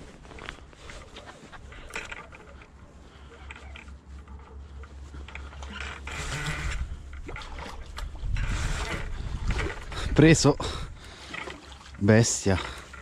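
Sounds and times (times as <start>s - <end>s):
glove and sleeve rustling: 0.0s - 6.6s.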